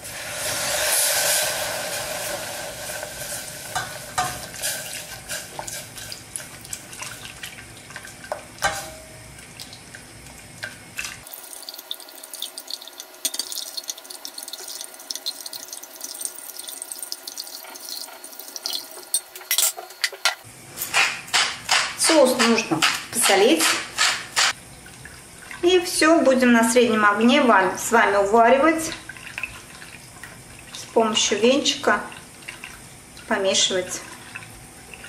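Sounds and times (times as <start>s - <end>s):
milk pouring into saucepan: 11.3s - 19.0s.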